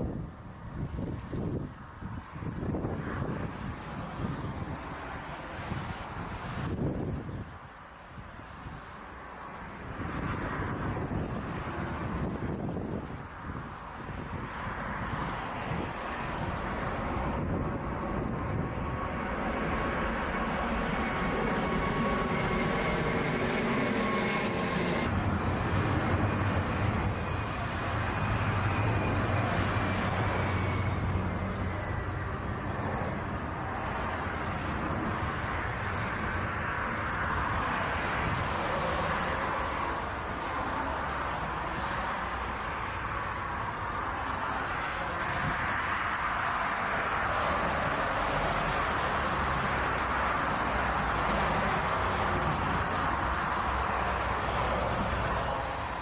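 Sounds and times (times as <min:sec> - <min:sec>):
jet engines rushing: 0:00.0 - 0:56.0
jet engine whine sliding down: 0:14.6 - 0:40.9.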